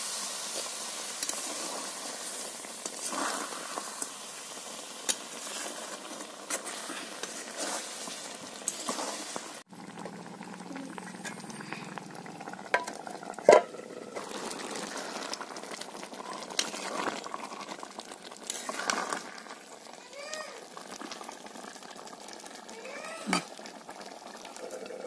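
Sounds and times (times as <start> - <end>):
curry bubbling in pan: 0.0 - 25.0
spatula scraping pan: 5.4 - 9.6
steel lid knocking pan rim: 13.5 - 13.7.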